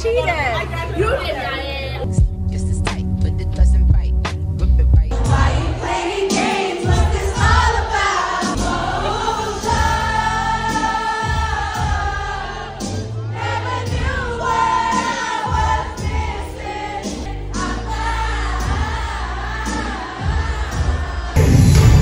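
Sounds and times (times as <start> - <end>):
amplified r and b music: 2.0 - 22.0
audience singing along: 5.1 - 22.0.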